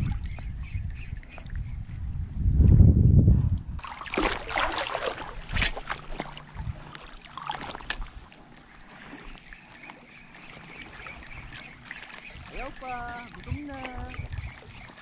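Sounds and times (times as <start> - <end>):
water splashing and sloshing: 0.0 - 2.0, 3.5 - 15.0.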